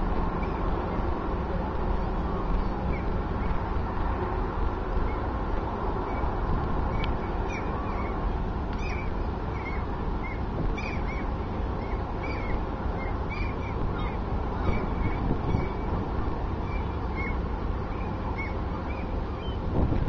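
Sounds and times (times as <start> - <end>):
ship engine rumble: 0.0 - 20.0
birds chirping: 2.0 - 3.8, 6.0 - 19.7.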